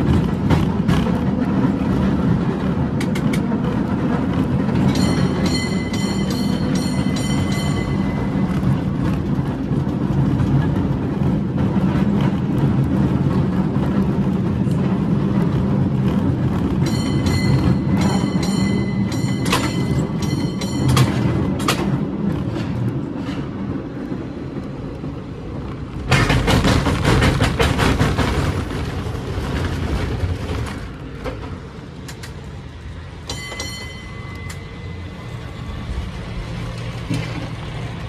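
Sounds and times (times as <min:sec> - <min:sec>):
low street rumble: 0:00.0 - 0:38.0
tram clattering rumble: 0:00.0 - 0:38.0
tram bell ringing: 0:04.0 - 0:10.1, 0:16.6 - 0:22.6, 0:33.1 - 0:36.8.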